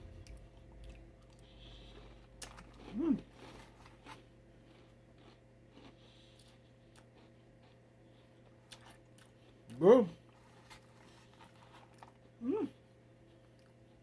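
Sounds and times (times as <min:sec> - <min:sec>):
low steady hum: 0:00.0 - 0:14.0
chewing crunchy cereal: 0:00.1 - 0:14.0
person humming: 0:02.9 - 0:03.3, 0:12.4 - 0:12.8.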